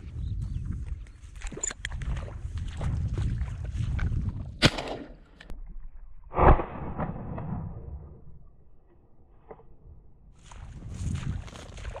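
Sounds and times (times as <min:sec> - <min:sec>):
wind rumbling on microphone: 0:00.0 - 0:08.6, 0:10.3 - 0:12.0
shotgun shots: 0:04.6 - 0:05.2.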